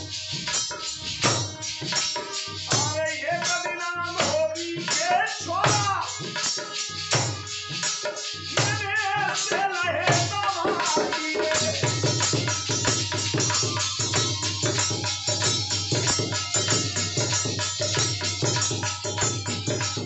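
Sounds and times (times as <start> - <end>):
fast hand drum beat: 0.0 - 20.0
harmonium: 0.0 - 20.0
violin: 0.0 - 20.0
man singing: 2.7 - 6.5, 8.5 - 12.5.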